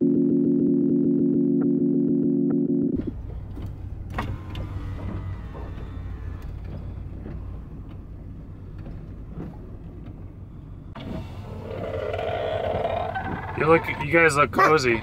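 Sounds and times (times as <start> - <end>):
engine and tyre rumble: 2.5 - 15.0
sharp knocks and rattles: 3.0 - 14.2.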